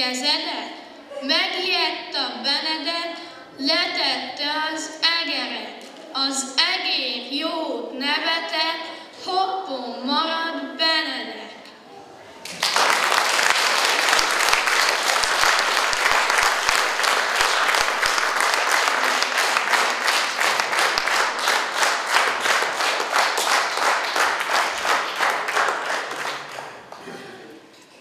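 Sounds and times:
audience applauding: 12.4 - 27.1.

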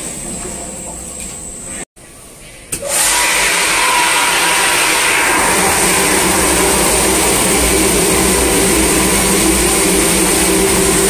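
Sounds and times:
mixer machine whirring: 2.8 - 11.0
liquid churning in tank: 2.9 - 11.0.

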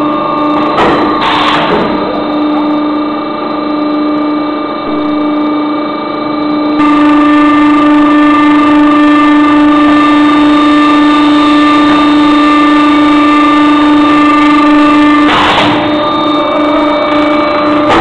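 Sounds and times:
blow moulding machine drone: 0.0 - 18.0.

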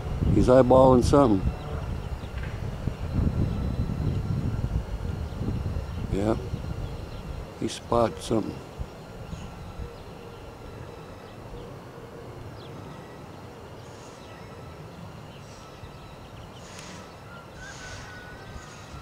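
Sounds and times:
wind on microphone: 0.0 - 10.7
small birds chirping: 0.0 - 19.0.

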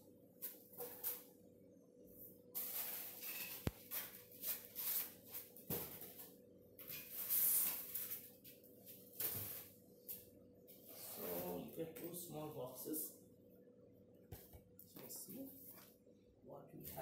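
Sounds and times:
styrofoam and plastic rustling: 2.6 - 6.3, 6.9 - 9.8.

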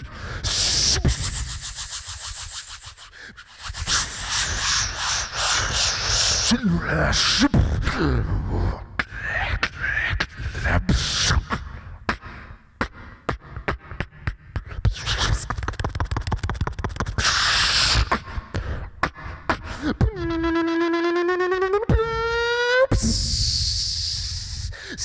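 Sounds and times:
beatboxing kick-drum thumps: 0.0 - 25.0
beatboxing clicks: 0.4 - 6.5, 9.0 - 21.1
held pitched vocal note: 19.8 - 24.7.

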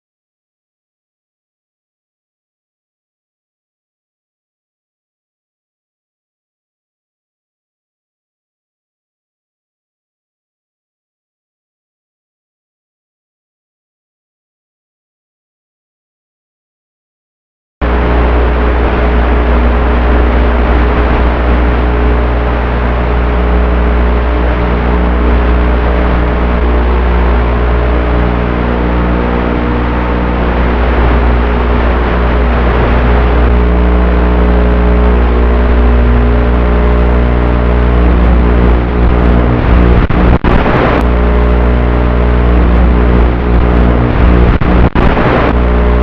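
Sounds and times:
electric motors and propellers humming: 17.8 - 46.0
wind rush: 17.8 - 46.0.

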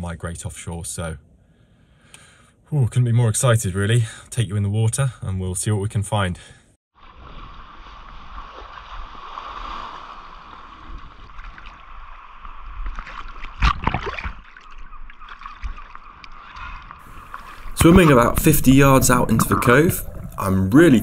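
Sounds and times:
sea water sloshing and splashing: 7.0 - 21.0.

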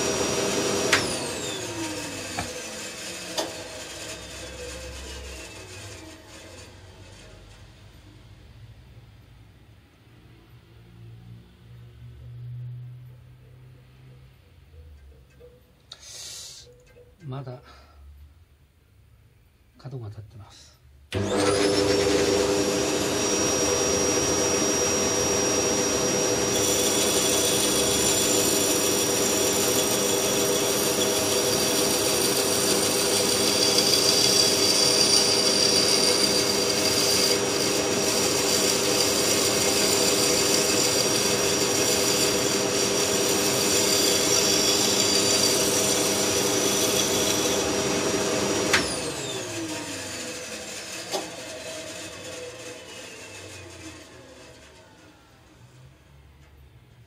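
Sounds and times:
band saw humming: 0.0 - 7.6, 21.2 - 55.1.

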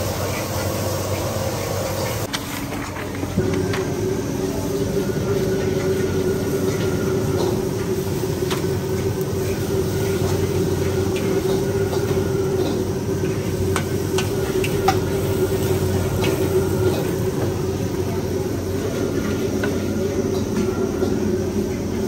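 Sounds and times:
gas burner rushing: 0.0 - 22.0
noodles frying: 0.0 - 22.0.

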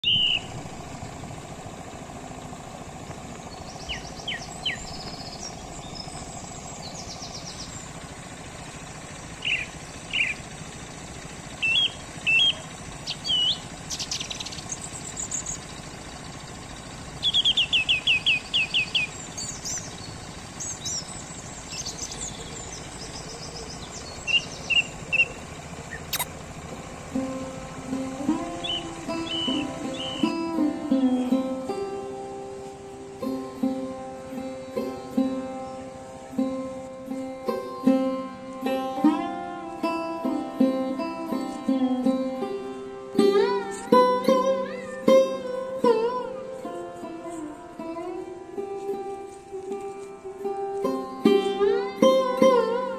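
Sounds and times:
birds chirping and calling: 0.0 - 38.0, 43.2 - 48.2
steady low hum: 0.0 - 52.9
sharp click: 26.1 - 26.4.

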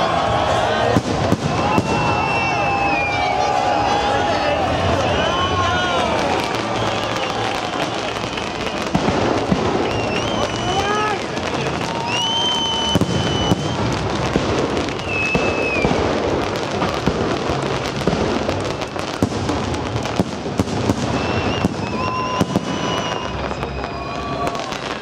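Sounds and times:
fireworks bangs and crackles: 0.0 - 25.0
fireworks high whistles: 0.1 - 4.2, 4.9 - 25.0
continuous crackling hiss: 5.8 - 22.0.

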